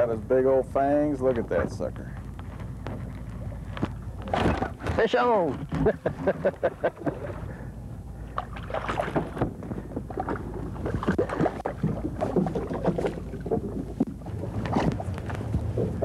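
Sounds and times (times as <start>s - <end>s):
water slapping boat hull: 0.6s - 16.0s
wind on microphone: 8.9s - 16.0s.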